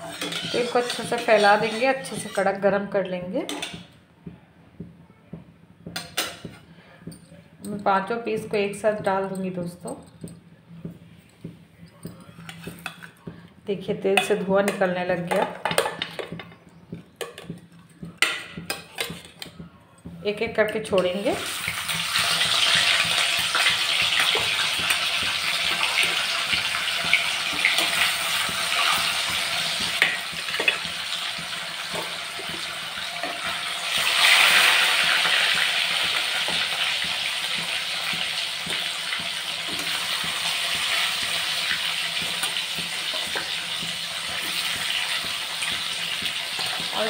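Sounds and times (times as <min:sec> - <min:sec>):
fish sizzling in hot oil: 0:00.0 - 0:02.4, 0:21.3 - 0:47.0.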